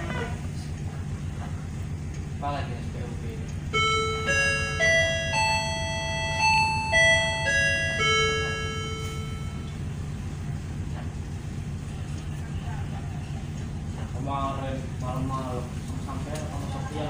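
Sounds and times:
low engine hum: 0.0s - 17.0s
electronic chime melody: 3.8s - 10.0s.

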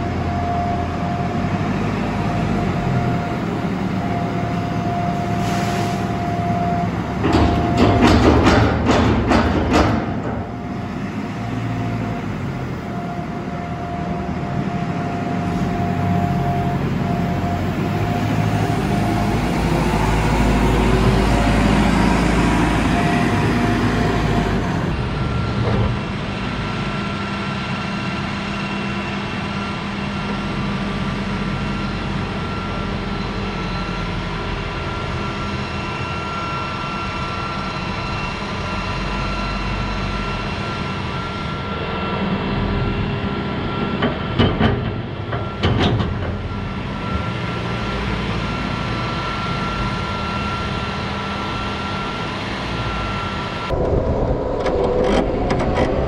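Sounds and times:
diesel engine working: 0.0s - 56.0s
sharp knocks: 7.3s - 10.5s.

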